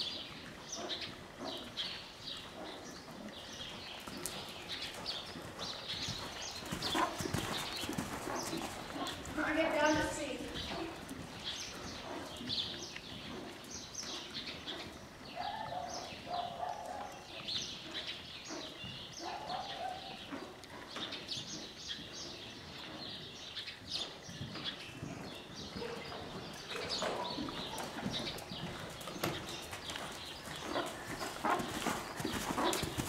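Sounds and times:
small birds chirping: 0.0 - 33.0
horse hoofbeats on sand: 3.6 - 13.4, 23.9 - 33.0.

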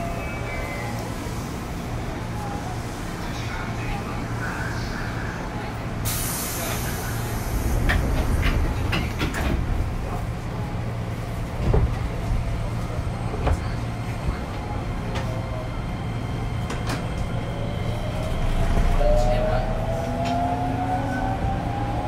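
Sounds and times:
train car low hum: 0.0 - 22.0
knocks and clunks: 7.8 - 10.2.

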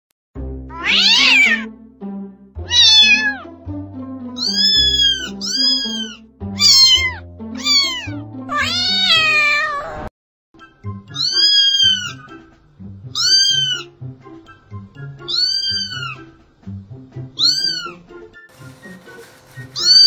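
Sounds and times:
background music: 0.4 - 9.6, 10.6 - 20.0
kittens meowing: 0.7 - 1.7, 2.6 - 3.5, 4.4 - 10.1, 11.1 - 12.3, 13.2 - 13.9, 15.2 - 16.3, 17.4 - 18.0, 19.8 - 20.0.

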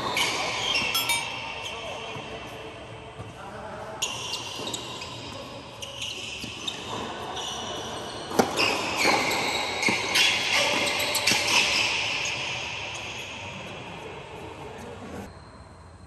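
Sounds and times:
rackets hitting tennis ball: 7.9 - 11.8
tennis ball bouncing: 8.3 - 9.2.

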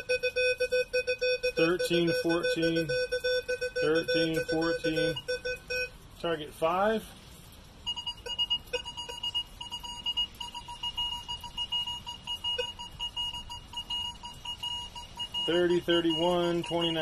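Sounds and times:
metal detector beeps: 0.0 - 6.0, 7.8 - 17.0.

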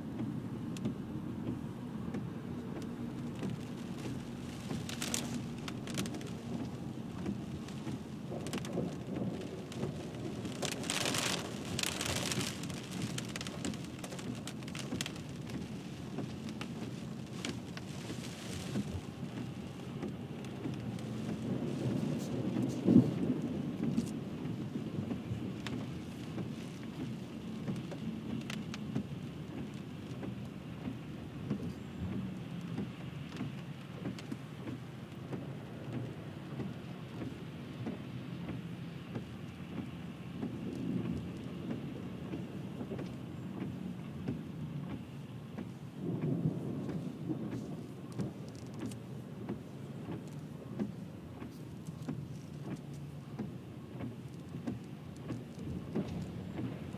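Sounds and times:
rain pattering on car roof: 0.0 - 56.9
thunder rumbling: 3.0 - 15.0.

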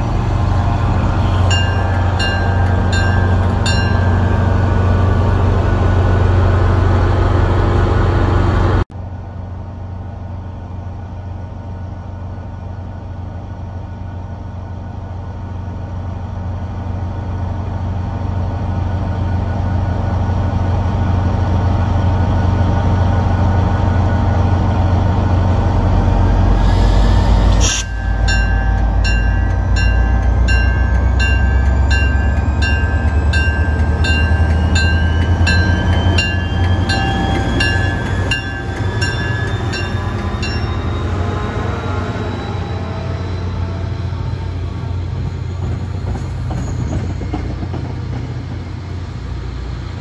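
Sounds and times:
locomotive bell ringing: 0.0 - 6.8, 27.7 - 44.5
diesel locomotive engine: 0.0 - 50.0.

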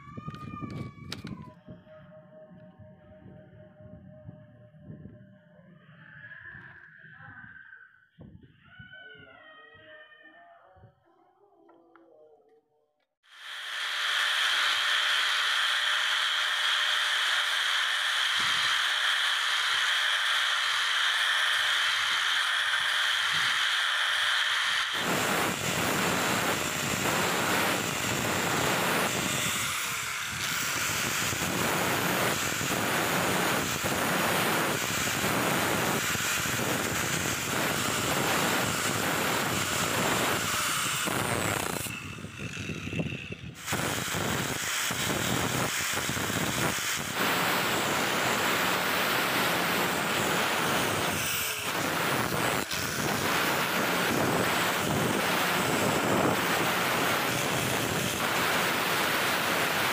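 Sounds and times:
angle grinder grinding steel: 13.3 - 59.9.

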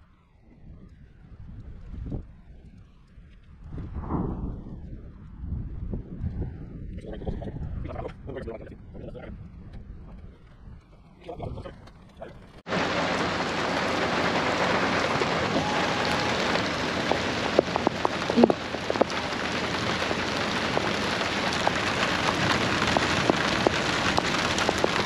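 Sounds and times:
heavy rain: 12.7 - 25.0
raindrops ticking close by: 12.7 - 25.0.

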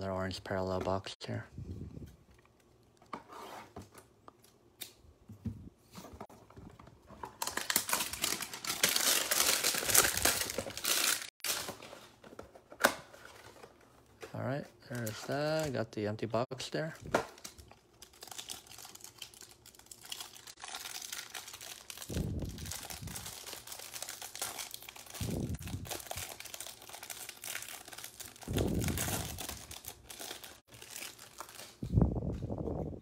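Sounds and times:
plastic wrap crinkling: 7.2 - 11.8, 16.9 - 31.8.

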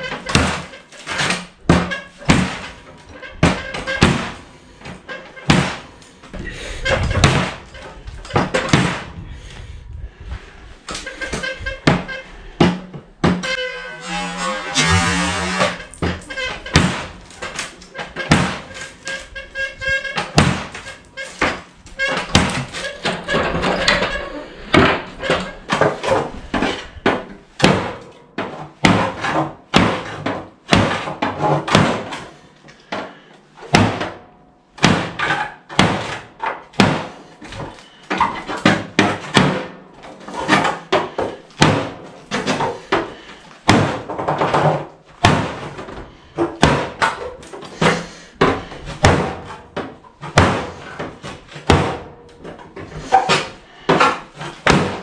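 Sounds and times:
knife stabbing sheet metal: 14.0 - 19.3.

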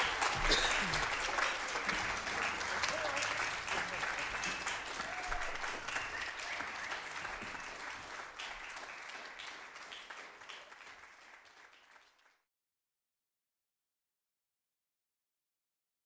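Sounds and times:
audience applauding: 0.0 - 12.5.

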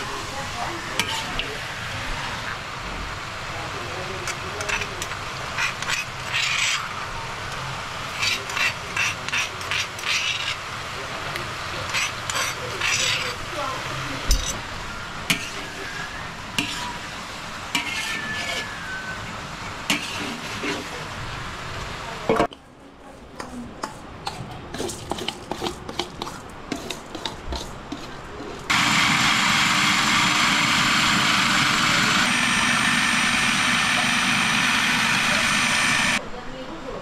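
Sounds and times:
metal spoon scraping wok: 0.9 - 1.6, 4.2 - 10.7, 11.8 - 13.5, 15.3 - 17.1, 17.7 - 19.3, 19.9 - 21.0, 23.8 - 36.2.

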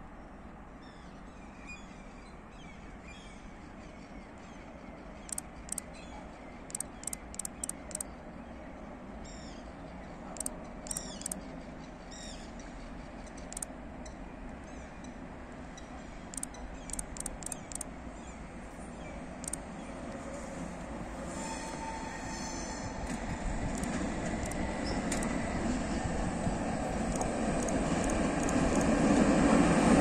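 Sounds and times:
distant train rumble: 6.6 - 30.0
small birds calling: 16.0 - 18.4.

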